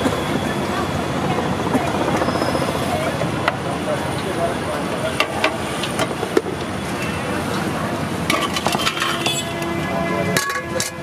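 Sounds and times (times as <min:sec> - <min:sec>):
metal spoon scraping steel plate: 0:08.3 - 0:09.6.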